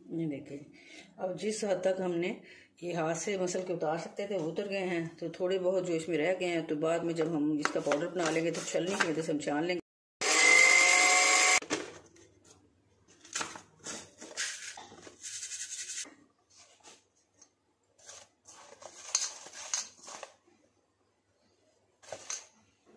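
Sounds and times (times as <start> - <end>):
grinder motor whining: 10.2 - 11.6.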